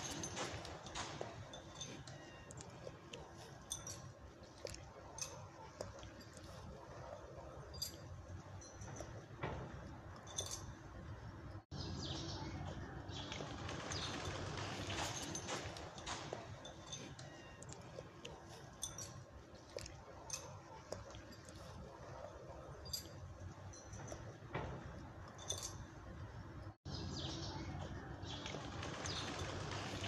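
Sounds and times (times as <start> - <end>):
small birds chirping: 11.7 - 15.0, 26.8 - 30.0.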